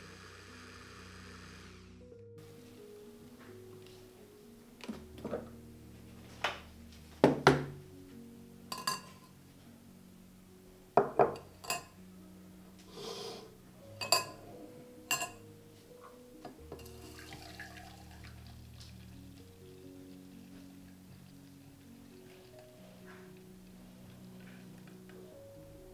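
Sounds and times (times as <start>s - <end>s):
soft background music: 0.0s - 25.9s
kitchenware clinking and knocking: 8.7s - 9.3s, 11.0s - 12.0s, 14.0s - 14.5s, 15.1s - 15.4s, 16.7s - 18.0s.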